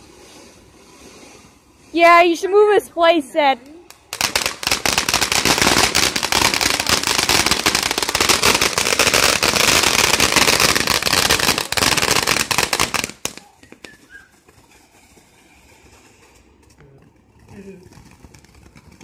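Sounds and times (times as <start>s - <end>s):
firework crackling: 3.6s - 14.8s.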